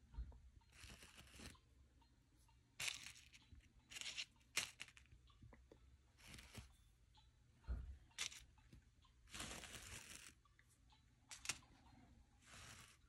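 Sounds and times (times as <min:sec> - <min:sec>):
toy set down on paper card: 0:02.8 - 0:05.1, 0:08.2 - 0:08.5, 0:11.3 - 0:11.6.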